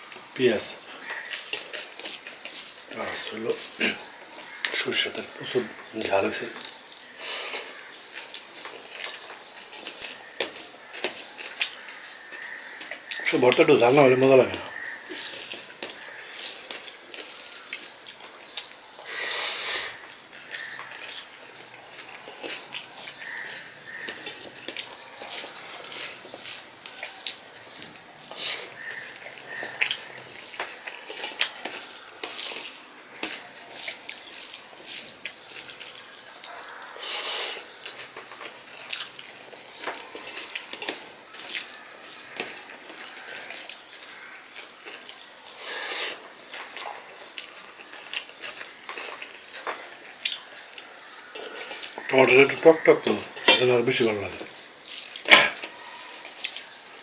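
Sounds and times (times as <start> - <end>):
fingers squishing rice: 19.4 - 38.1
wet mouth smacks and chewing: 20.0 - 36.6, 37.6 - 45.6, 46.2 - 50.9.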